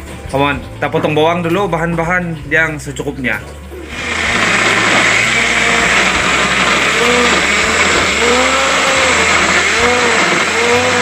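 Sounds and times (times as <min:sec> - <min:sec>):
blender motor whirring: 0:03.8 - 0:11.0.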